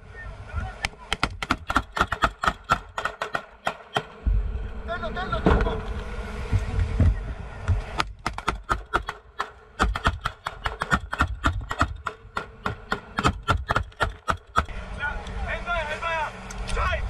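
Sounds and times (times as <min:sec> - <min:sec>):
gunshots: 0:01.1 - 0:04.2, 0:08.1 - 0:14.7
low rumble: 0:04.1 - 0:08.2.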